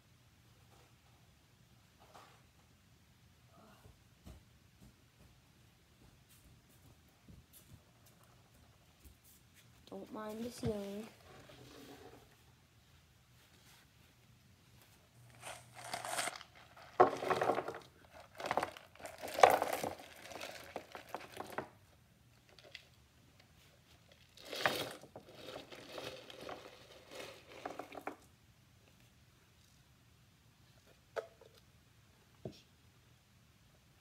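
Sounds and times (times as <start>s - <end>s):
crinkling and rustling items: 7.2s - 29.8s.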